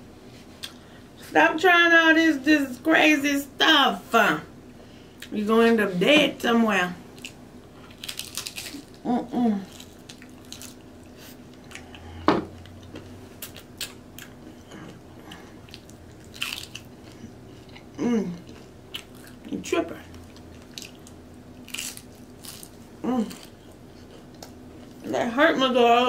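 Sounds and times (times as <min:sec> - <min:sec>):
crunching and chewing chips: 0:07.2 - 0:19.5, 0:20.1 - 0:25.1
person humming briefly: 0:09.0 - 0:09.7.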